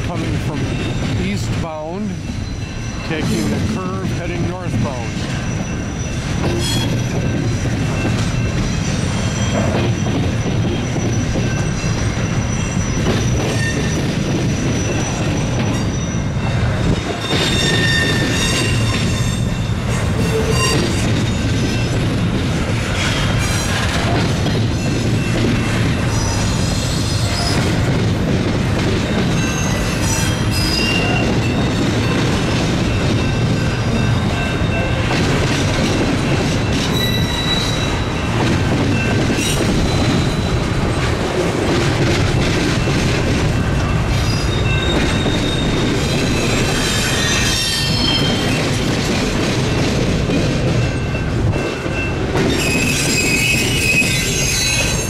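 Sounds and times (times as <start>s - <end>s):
steel wheels rumbling on rail: 0.0s - 55.0s
wheel flange squeal: 17.2s - 19.4s, 20.2s - 21.4s, 36.9s - 38.1s, 52.5s - 55.0s.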